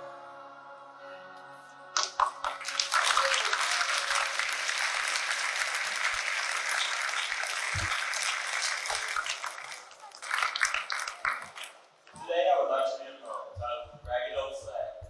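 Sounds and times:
audience applauding: 2.0 - 11.8.

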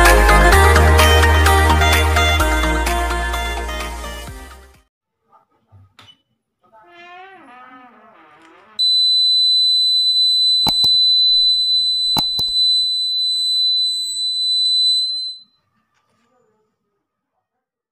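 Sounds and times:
high-pitched buzzer tone: 8.8 - 15.4.

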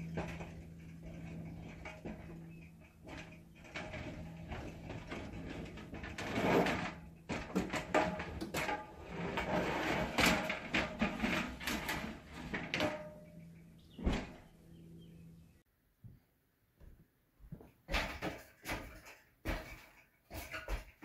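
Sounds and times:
knocking and scraping on wall: 0.0 - 14.4, 17.5 - 21.0
steady low hum: 0.0 - 15.7.

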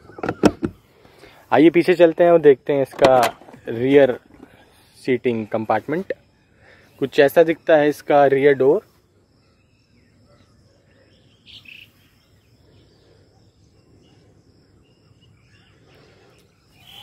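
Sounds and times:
faint outdoor background noise: 0.0 - 17.0
high chirp: 14.8 - 17.0.

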